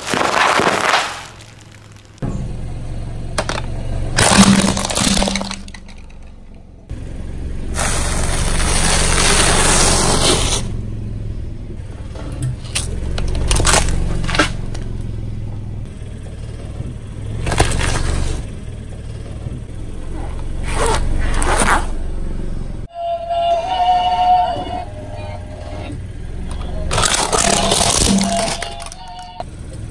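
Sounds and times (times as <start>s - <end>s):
sharp cracks of objects crushed: 0.0s - 2.2s, 3.4s - 6.6s, 12.6s - 14.8s, 17.4s - 18.4s, 26.9s - 29.2s
tyre crushing crispy wafers: 0.0s - 2.2s, 3.4s - 6.2s, 26.9s - 29.1s
low engine hum: 1.1s - 29.9s.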